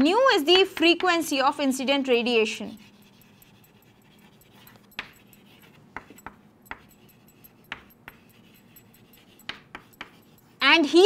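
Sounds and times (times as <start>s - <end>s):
chalk tapping on chalkboard: 2.1s - 10.9s.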